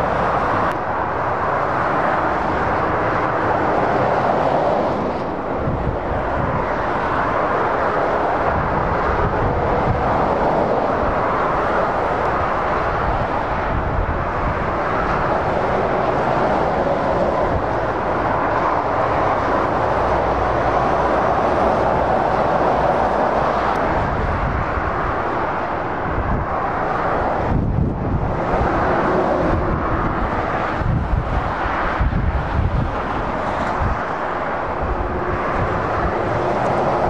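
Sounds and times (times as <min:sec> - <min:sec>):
motorway traffic rushing: 0:00.0 - 0:37.0.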